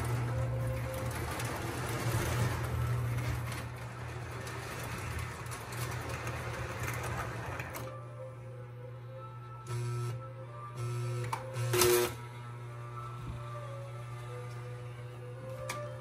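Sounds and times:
wheels clicking on rails: 0.0s - 8.0s.

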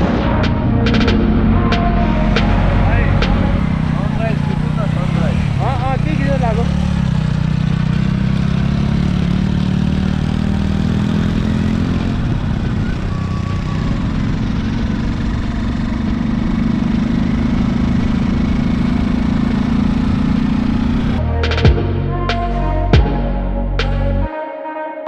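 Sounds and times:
constant rushing noise: 0.0s - 10.4s
vehicle engine hum: 0.0s - 24.3s.

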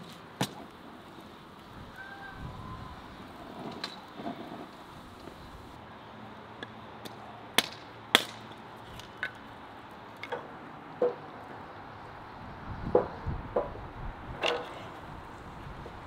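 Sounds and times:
hatchet chopping wood: 7.6s - 8.4s.

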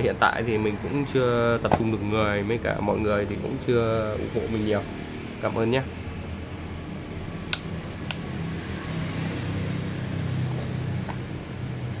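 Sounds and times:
rocker switches clicking: 7.5s - 8.3s.

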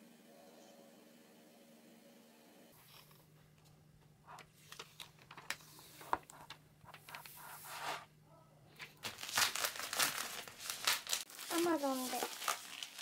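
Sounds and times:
plastic crinkling: 8.8s - 13.0s.

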